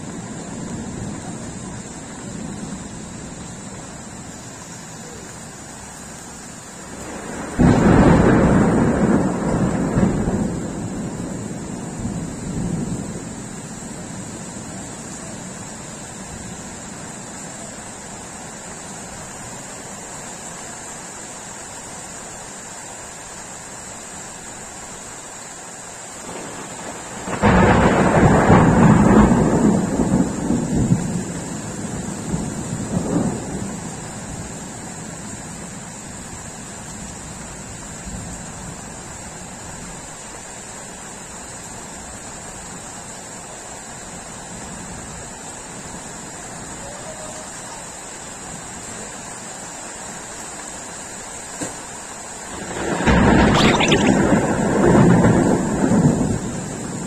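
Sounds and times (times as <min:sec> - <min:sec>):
rain hiss: 0:00.0 - 0:57.0
thunder clap rumbling: 0:06.9 - 0:14.8, 0:26.2 - 0:34.5, 0:52.5 - 0:57.0.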